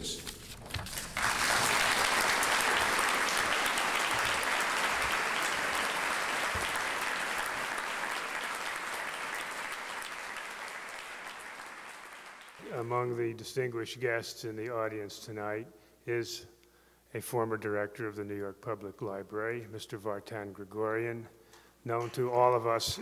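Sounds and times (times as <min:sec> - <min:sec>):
audience applauding: 0:00.9 - 0:12.9.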